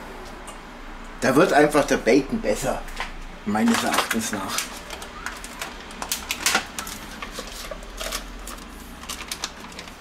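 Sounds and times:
plastic packaging crackling: 3.6 - 10.0.

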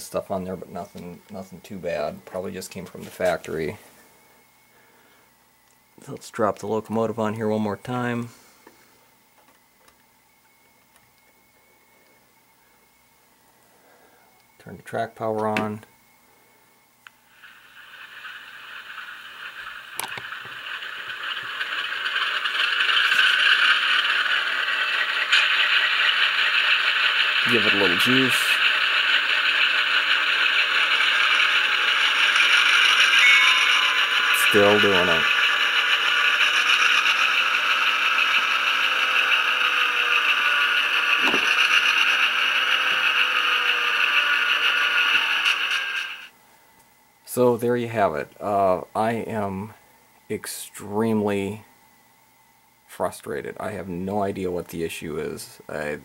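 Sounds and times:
model locomotive hissing whir: 11.6 - 46.4
brief falling tone: 33.0 - 35.0.

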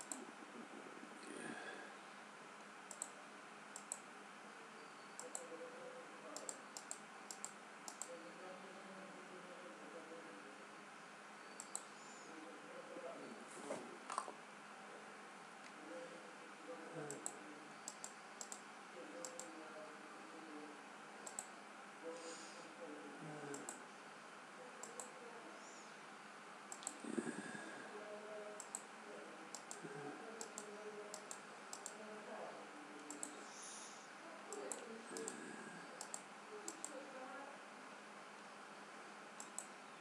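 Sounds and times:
sharp clicks: 0.0 - 0.3, 2.9 - 4.0, 5.2 - 5.5, 6.4 - 8.1, 11.6 - 11.9, 17.1 - 19.5, 21.2 - 21.5, 23.5 - 23.8, 26.7 - 27.0, 28.6 - 28.9, 29.5 - 29.8, 30.4 - 32.0, 33.0 - 33.4, 36.0 - 37.0, 39.4 - 39.8
faint muffled speech: 4.4 - 26.2, 26.8 - 40.0.

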